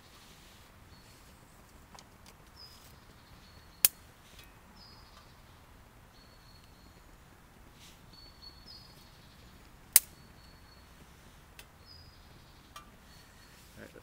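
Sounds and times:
sharp click: 9.9s - 10.2s.

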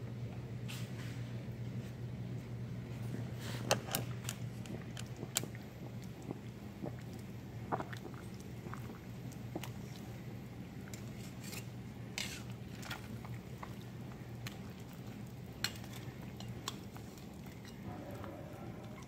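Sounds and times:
steady low hum: 0.0s - 19.0s
metal tongs scraping metal pot: 10.9s - 12.9s, 15.6s - 16.8s.

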